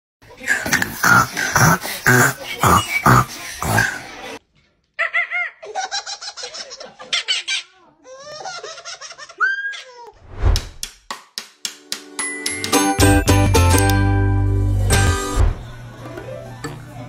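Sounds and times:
baby laughing: 5.0 - 10.2.

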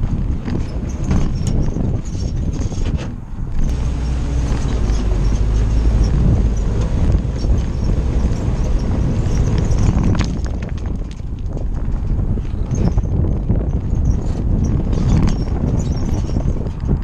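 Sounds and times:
engine running at low revs: 3.3 - 12.5.

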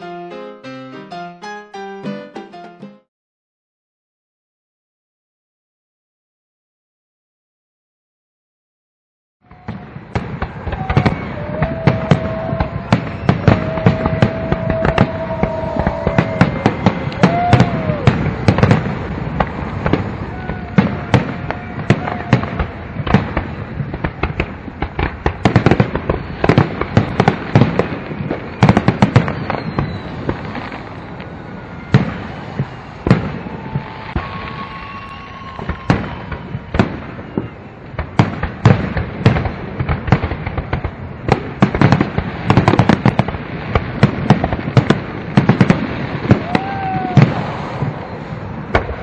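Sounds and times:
fireworks bangs and crackling: 9.4 - 49.0
fireworks whistles: 9.5 - 39.5, 44.0 - 49.0.

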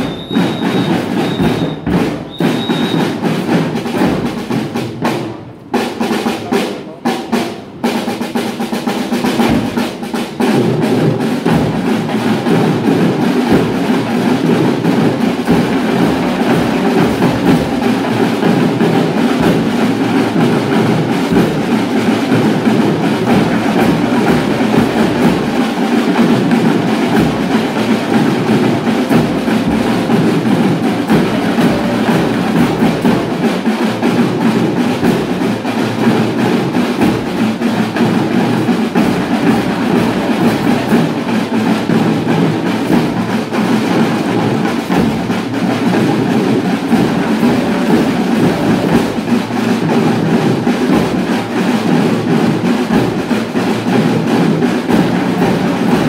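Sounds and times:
snare and bass drums beating: 0.0 - 56.0.

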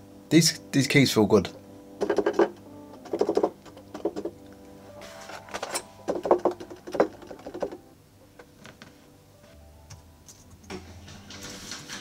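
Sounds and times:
plastic keyboard keys clacking: 5.5 - 7.8.

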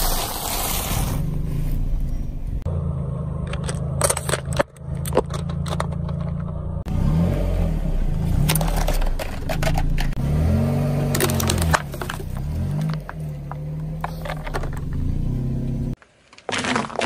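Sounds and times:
car engine humming: 0.0 - 16.0
tyre crushing small objects: 11.0 - 15.1, 16.0 - 17.0.

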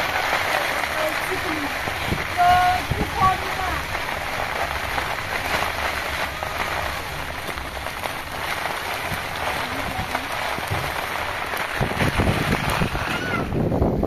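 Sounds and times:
low rumble: 0.0 - 14.0
rain on muddy ground and puddles: 0.0 - 14.0.

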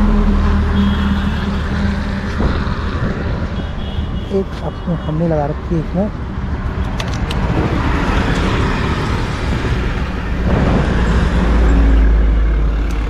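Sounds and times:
heavy vehicle low rumble: 0.0 - 4.7, 5.4 - 13.0
vehicles passing on road: 0.0 - 13.0.

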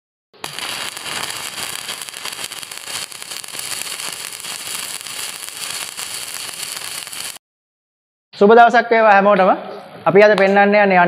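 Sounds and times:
crackling hiss of metal cutting: 0.4 - 7.4.

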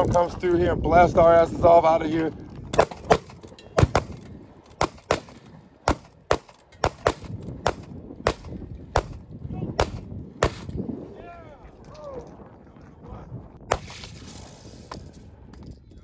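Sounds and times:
gunshots: 2.7 - 4.2, 4.8 - 9.2, 9.8 - 10.8, 13.6 - 14.2.

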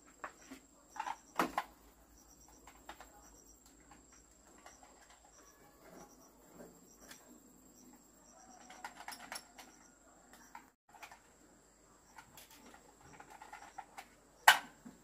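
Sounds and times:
faint high chirps: 0.2 - 10.8.

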